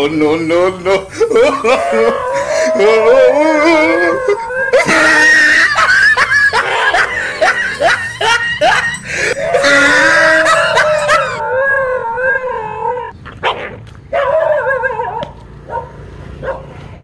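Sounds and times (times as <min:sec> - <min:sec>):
dog howling: 0:01.4 - 0:13.2
dog yelping: 0:01.5 - 0:16.6.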